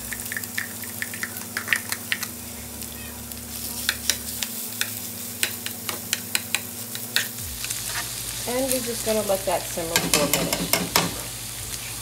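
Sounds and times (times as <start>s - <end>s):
crab meat sizzling in oil: 0.0s - 12.0s
metal tongs clicking on pan: 0.1s - 2.3s, 3.8s - 7.3s, 9.9s - 11.2s.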